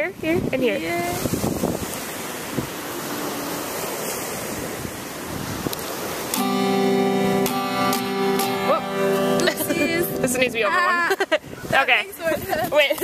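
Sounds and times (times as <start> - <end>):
wind rushing on microphone: 0.0 - 6.4, 9.7 - 13.0
acoustic guitar chord strummed: 6.3 - 11.2.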